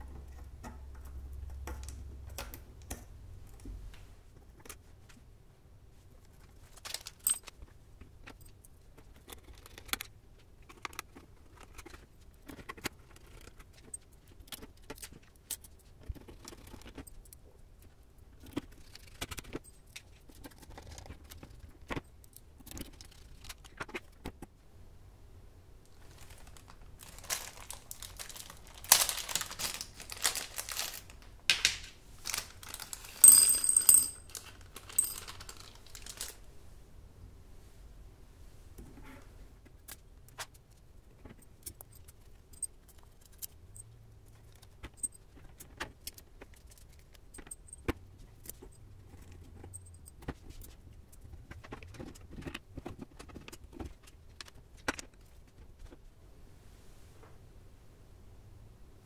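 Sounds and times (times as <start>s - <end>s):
plastic bag crinkling: 26.0s - 36.5s
metal parts jingling: 32.3s - 36.3s.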